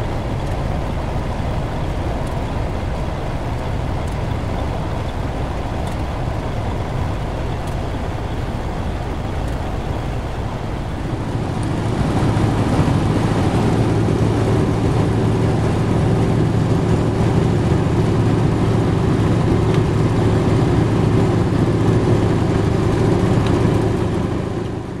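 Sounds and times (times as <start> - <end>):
vehicle interior engine drone: 0.0 - 25.0.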